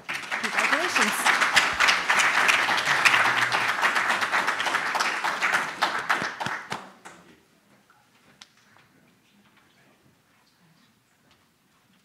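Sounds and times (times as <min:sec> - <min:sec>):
small audience clapping: 0:00.0 - 0:07.3.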